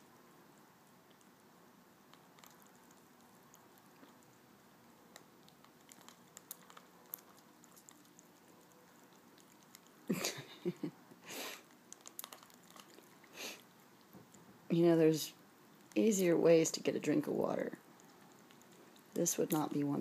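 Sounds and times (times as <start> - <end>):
cat lapping water: 5.1 - 10.1, 11.7 - 14.1.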